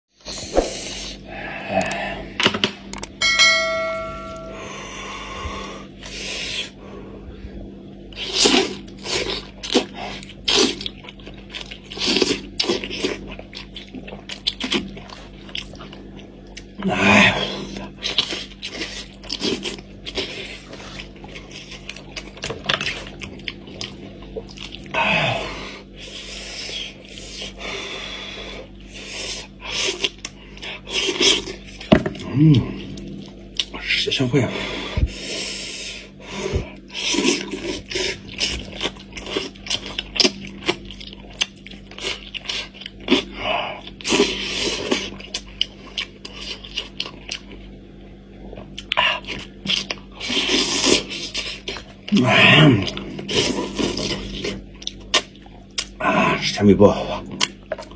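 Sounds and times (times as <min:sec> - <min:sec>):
chewing: 0:08.2 - 0:16.8, 0:17.6 - 0:25.0, 0:36.9 - 0:47.7, 0:48.5 - 0:52.2, 0:52.8 - 0:56.0
teeth gnawing meat from bone: 0:08.2 - 0:16.8, 0:17.7 - 0:24.9, 0:36.9 - 0:47.6.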